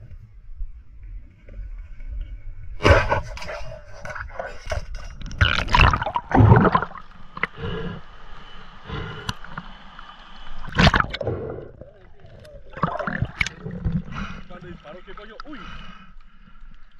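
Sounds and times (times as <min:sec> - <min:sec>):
river water splashing and gurgling: 0:05.3 - 0:16.0.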